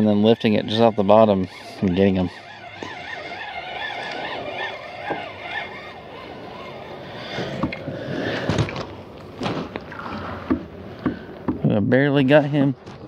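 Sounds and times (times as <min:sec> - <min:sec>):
fishing reel whirring: 0:00.0 - 0:08.4.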